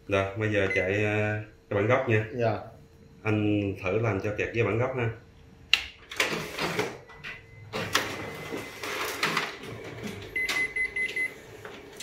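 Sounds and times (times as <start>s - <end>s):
copier document feeder running: 6.0s - 12.0s.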